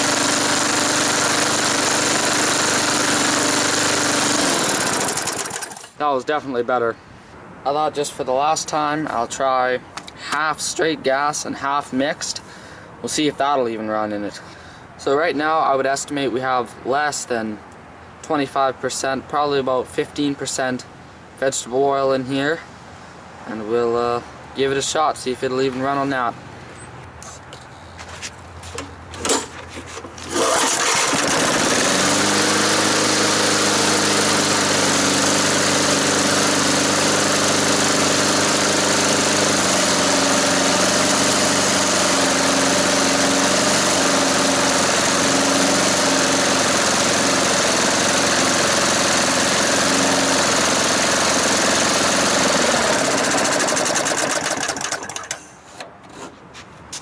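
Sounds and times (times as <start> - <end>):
lawnmower engine running: 0.0 - 6.0, 28.6 - 55.8
lawnmower pull starter: 0.0 - 6.0, 28.8 - 56.2.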